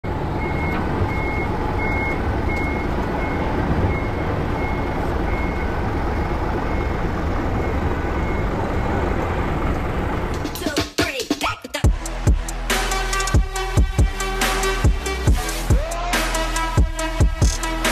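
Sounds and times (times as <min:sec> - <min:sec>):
truck back-up alarm beeping: 0:00.0 - 0:09.8
diesel engine running: 0:00.0 - 0:10.8, 0:11.8 - 0:17.9
intro music: 0:11.9 - 0:17.9.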